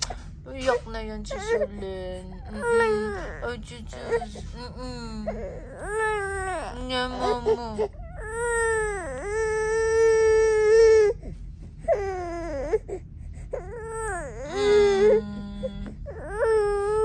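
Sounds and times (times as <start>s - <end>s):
baby crying in loud wails: 2.5s - 4.3s, 5.3s - 15.2s, 16.1s - 17.0s.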